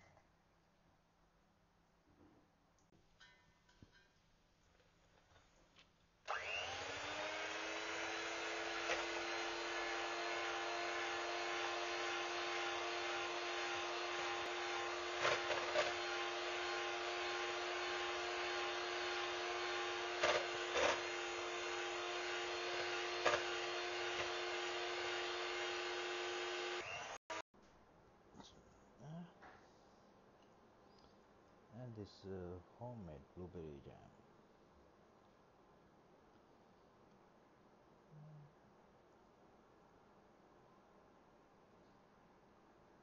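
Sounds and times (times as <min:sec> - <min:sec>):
electric hand mixer running: 0:06.3 - 0:27.4.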